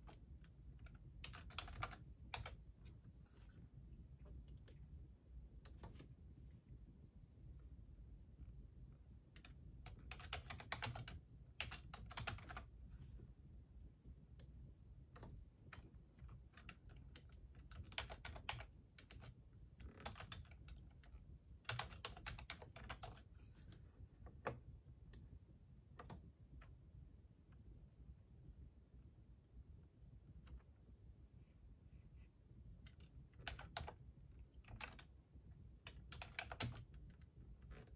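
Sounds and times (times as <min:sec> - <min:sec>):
typing on computer keyboard: 0:00.0 - 0:02.6, 0:09.3 - 0:12.8, 0:15.1 - 0:23.3, 0:26.0 - 0:26.3, 0:32.8 - 0:35.1, 0:35.8 - 0:37.9.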